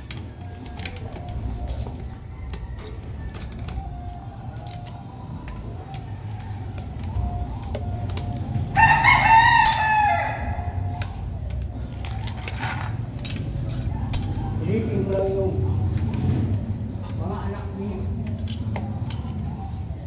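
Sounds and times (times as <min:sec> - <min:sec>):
rooster crowing: 0:02.3 - 0:03.6, 0:08.7 - 0:10.8.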